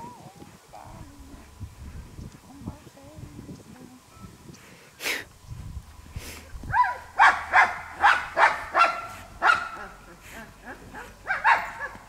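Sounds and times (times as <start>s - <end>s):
dog barking: 6.7s - 10.0s, 11.0s - 12.0s.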